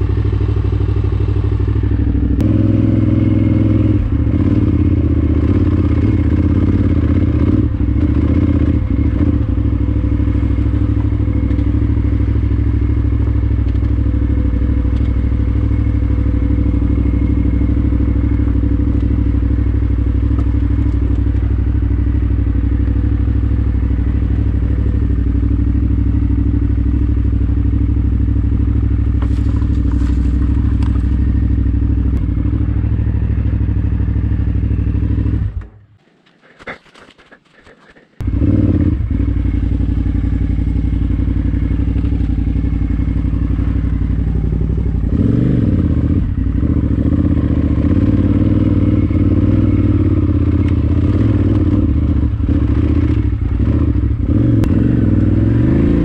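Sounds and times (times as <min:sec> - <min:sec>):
motorcycle engine running: 0:00.0 - 0:56.0
motorcycle knocks and clatter: 0:20.2 - 0:21.6, 0:28.7 - 0:32.6.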